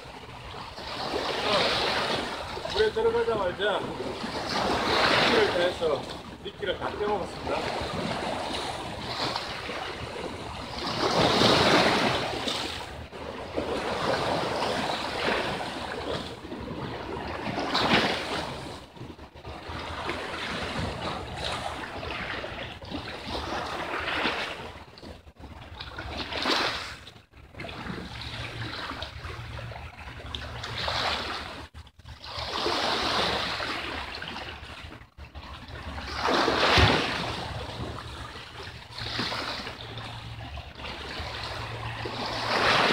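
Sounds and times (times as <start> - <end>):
waves splashing on rocks: 0.8 - 18.9, 35.6 - 42.9.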